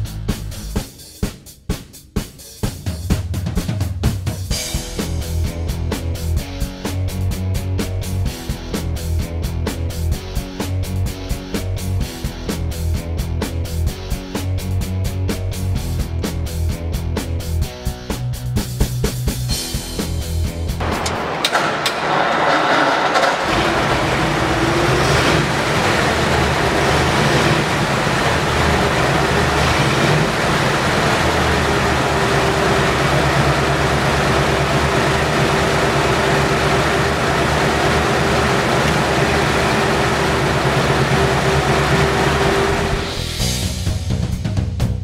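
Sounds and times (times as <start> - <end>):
engine cranking: 20.8 - 43.1
engine idling: 20.8 - 43.3.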